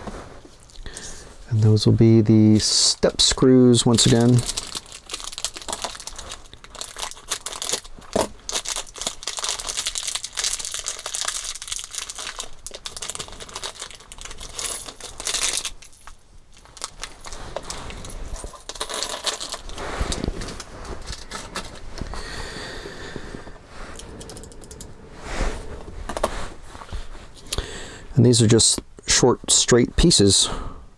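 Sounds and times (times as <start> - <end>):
plastic bag crinkling: 3.8 - 22.2.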